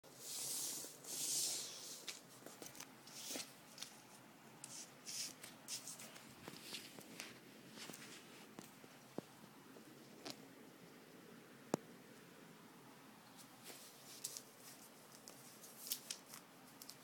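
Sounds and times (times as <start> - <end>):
plastic sheet rustling and crinkling: 5.1 - 8.6, 13.4 - 17.0.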